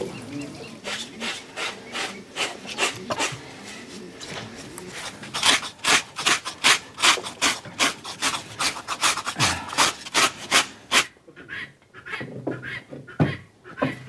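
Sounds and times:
hand scraping strokes: 0.7s - 11.1s.

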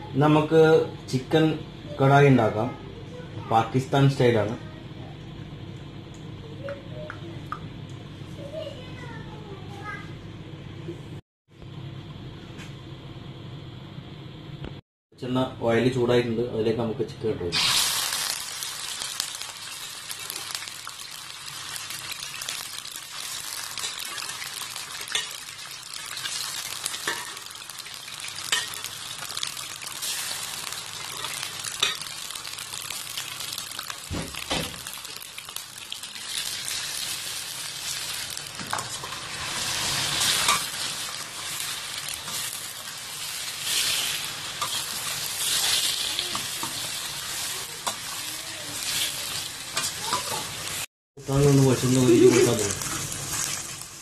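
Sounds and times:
chicken sizzling in hot oil: 17.5s - 54.0s.

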